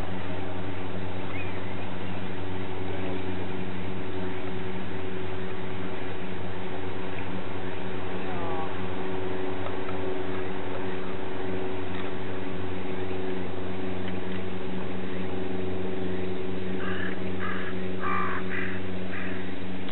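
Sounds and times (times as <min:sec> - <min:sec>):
low droning hum: 0:00.0 - 0:19.9
bird cawing: 0:16.8 - 0:19.6.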